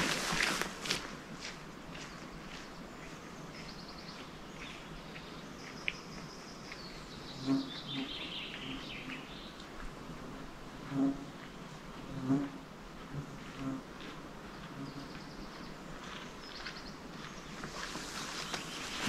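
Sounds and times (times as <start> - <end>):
songbird trills: 2.0 - 9.7, 14.6 - 19.0.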